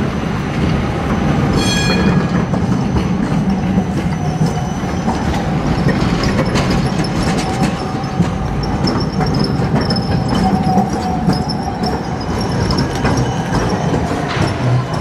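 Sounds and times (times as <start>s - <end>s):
tram rumble: 0.0s - 15.0s
tram wheels clicking over rails: 0.0s - 15.0s.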